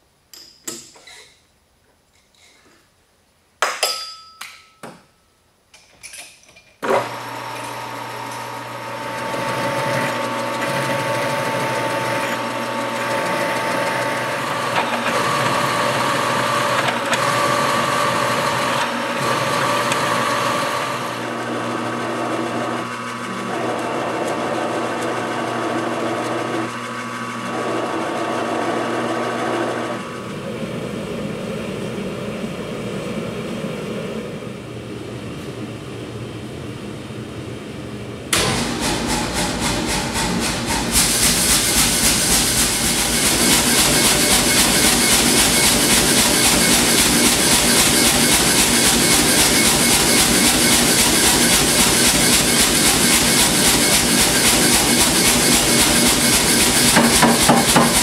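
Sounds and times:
gas forge burner rushing: 6.8s - 25.4s, 38.2s - 58.0s
lathe humming and whining: 6.8s - 35.3s, 38.3s - 58.0s.

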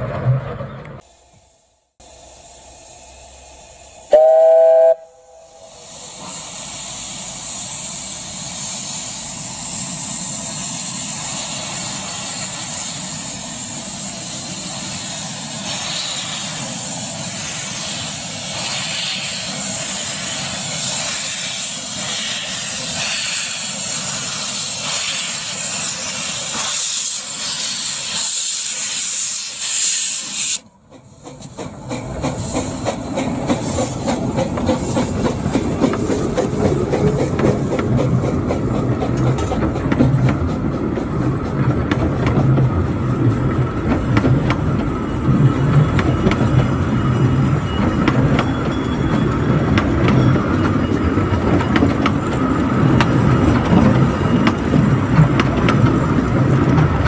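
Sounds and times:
train running past: 0.0s - 57.0s
steam locomotive hissing steam: 1.0s - 41.6s
wheels clicking over rail joints: 30.8s - 57.0s.

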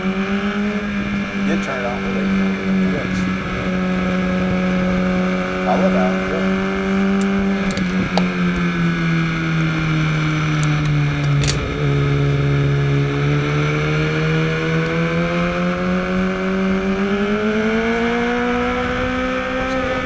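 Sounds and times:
motorcycle engine revving: 0.0s - 20.0s
sharp clicks: 10.6s - 11.7s.

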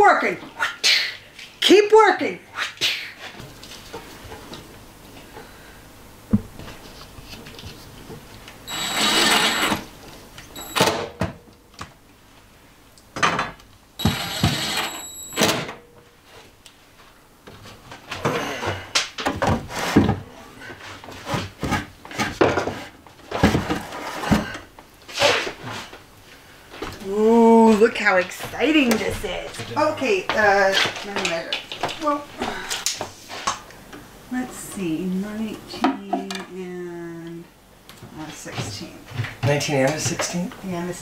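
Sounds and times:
cordless driver driving screws: 8.7s - 9.9s, 14.0s - 15.4s.

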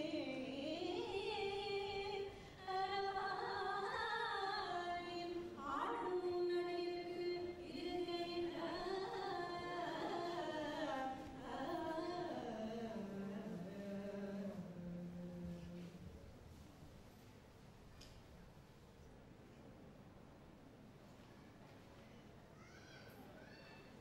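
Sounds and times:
person singing devotional song: 0.0s - 16.1s.

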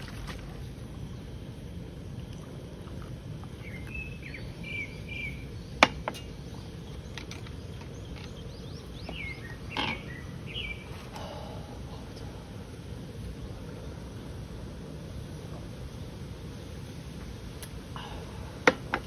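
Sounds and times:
small birds chirping: 0.0s - 14.2s
steady low background noise: 0.0s - 19.0s.

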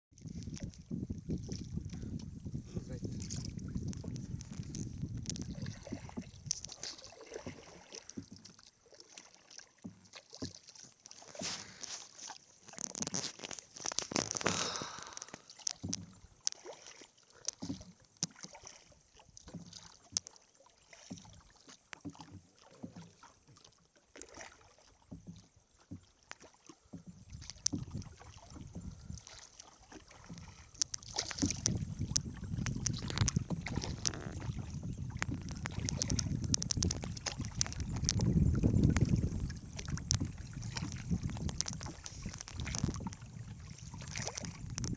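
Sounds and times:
wind buffeting microphone: 0.1s - 6.7s, 27.2s - 29.3s, 31.3s - 44.9s
water lapping against boat hull: 0.1s - 44.9s.

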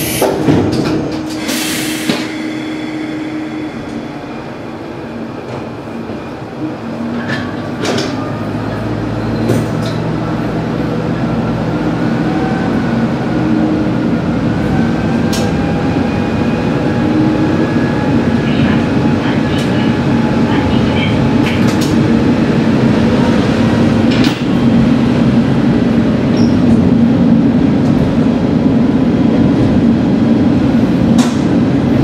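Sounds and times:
diesel railcar engine humming: 0.0s - 32.0s
air hiss: 1.4s - 4.0s.

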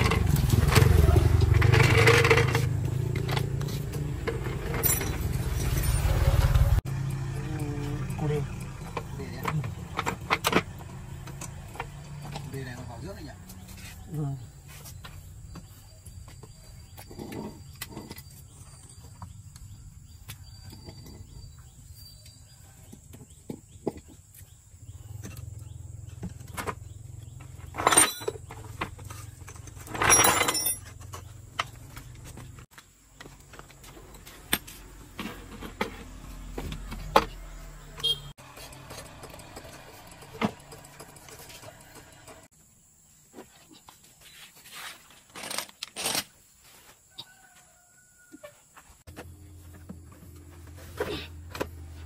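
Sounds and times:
clinks and knocks on metal: 4.2s - 5.8s, 27.6s - 31.8s
metal clattering: 27.7s - 31.2s.

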